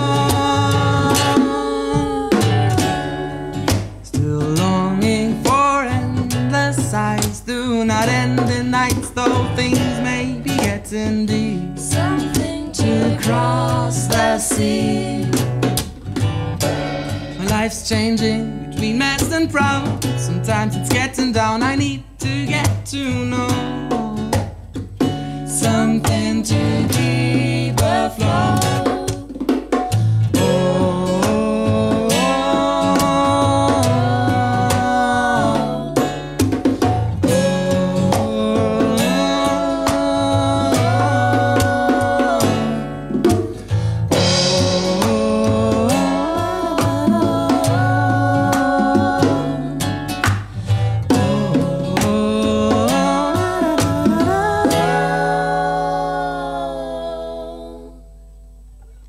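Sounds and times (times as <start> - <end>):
voices singing in harmony: 0.0 - 3.8, 11.3 - 15.8, 25.6 - 29.6, 30.4 - 36.3, 37.2 - 43.4, 44.1 - 50.1, 51.1 - 58.2
bongos: 0.0 - 56.3
acoustic guitar strumming: 0.0 - 59.0.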